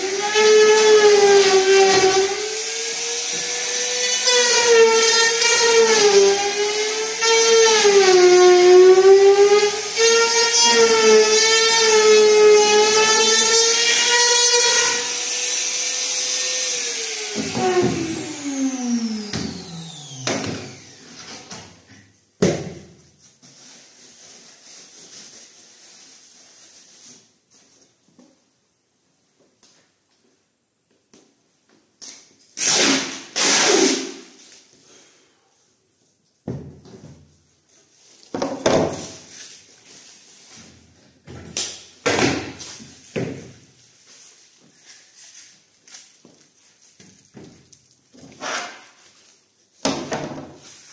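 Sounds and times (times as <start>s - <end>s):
router motor whining: 13.5s - 21.3s.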